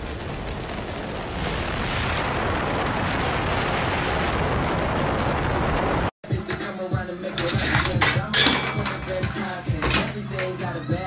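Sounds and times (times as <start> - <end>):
wind rushing over microphone: 0.0 - 6.1.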